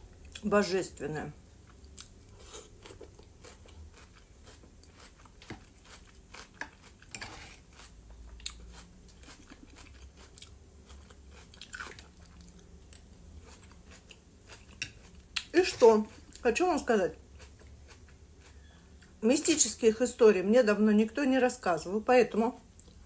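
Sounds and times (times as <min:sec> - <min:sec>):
chewing crunchy salad: 0:01.6 - 0:19.2.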